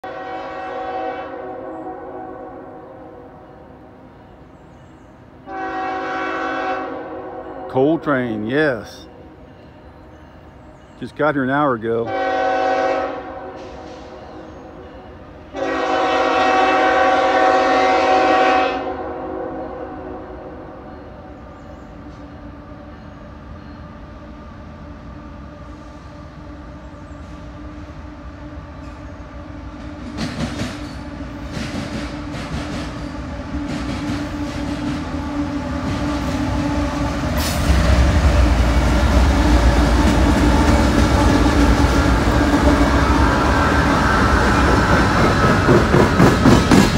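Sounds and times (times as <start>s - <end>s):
diesel locomotive engines: 0.0s - 46.9s
train wheels clicking over rail joints: 29.8s - 36.6s, 37.3s - 46.9s.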